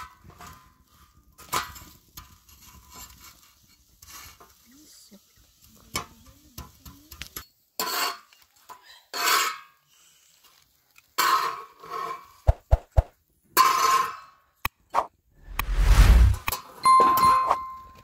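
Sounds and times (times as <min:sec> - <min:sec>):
metal spatula scraping griddle: 0:00.0 - 0:04.6, 0:07.8 - 0:09.9, 0:11.1 - 0:12.4.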